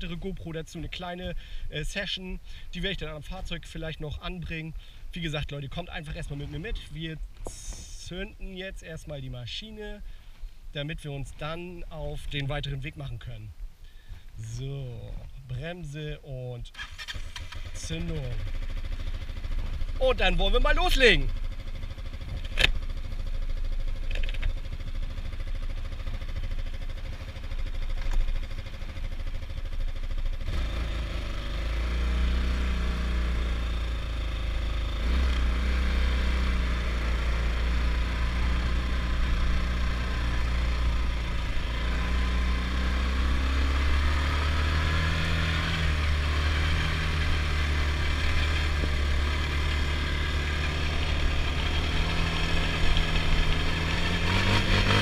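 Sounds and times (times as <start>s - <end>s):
quad engine starting and idling: 16.7s - 55.0s.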